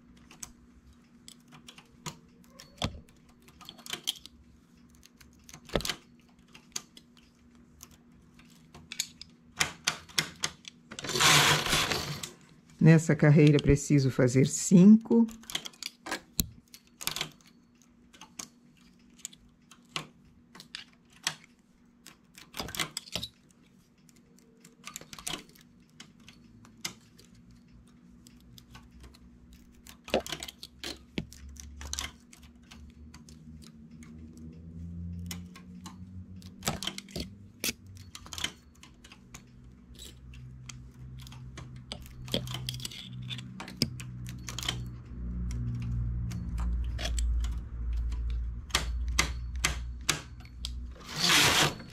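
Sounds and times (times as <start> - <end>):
metallic clicks on needle bed: 14.4 - 51.9.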